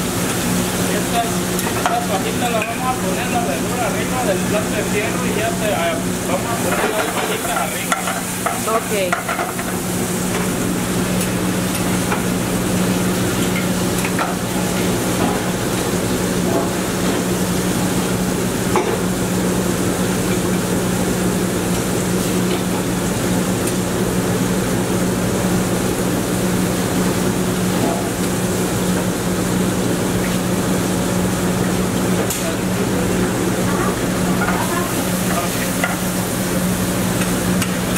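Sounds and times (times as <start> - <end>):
vegetables sizzling in pans: 0.0 - 18.2, 33.5 - 37.9.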